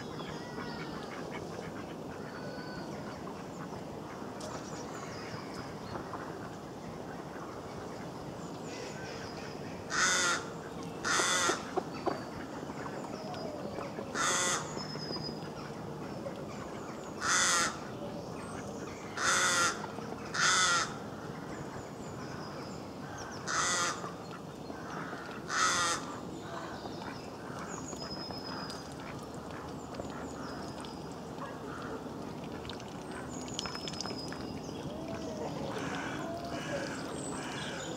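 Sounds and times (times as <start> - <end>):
crow cawing: 9.9 - 10.4, 14.2 - 14.6, 17.2 - 17.8, 23.5 - 24.0, 25.1 - 26.1
small birds chirping: 32.6 - 37.9.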